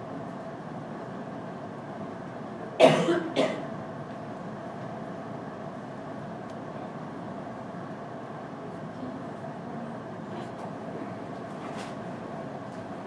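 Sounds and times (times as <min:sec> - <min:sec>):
steady room hum: 0:00.0 - 0:13.0
person coughing: 0:02.8 - 0:03.7.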